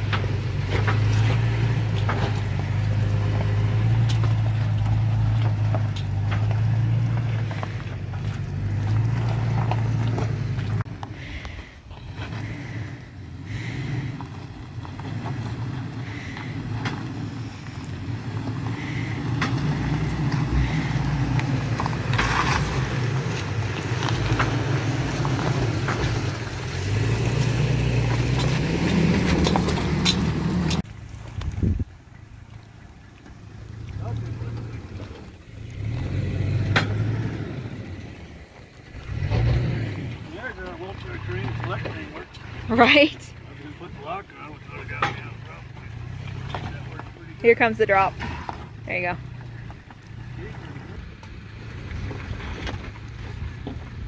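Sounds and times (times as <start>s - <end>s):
tyres crunching over loose rock: 0.0s - 12.8s, 13.5s - 31.8s
truck engine at low crawl: 0.0s - 54.0s.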